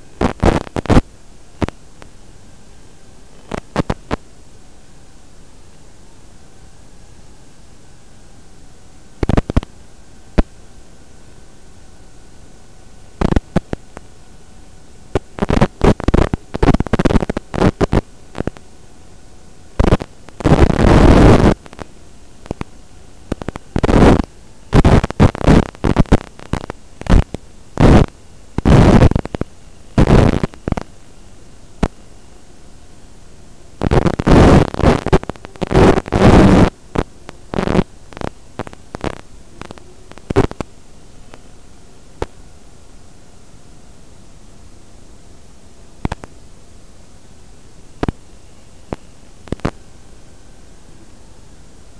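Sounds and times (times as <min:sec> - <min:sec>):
bursts of rough noise: 0:00.0 - 0:01.8, 0:15.1 - 0:18.8, 0:19.7 - 0:31.1, 0:33.7 - 0:41.4
static hiss: 0:00.0 - 0:51.9.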